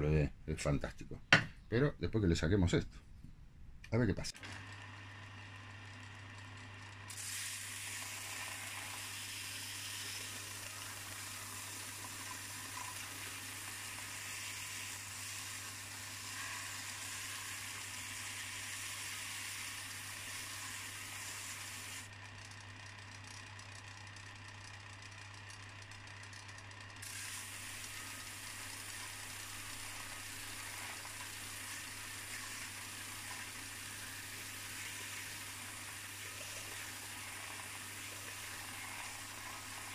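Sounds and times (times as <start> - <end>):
grinding hiss on metal: 7.1 - 22.1, 27.0 - 39.9.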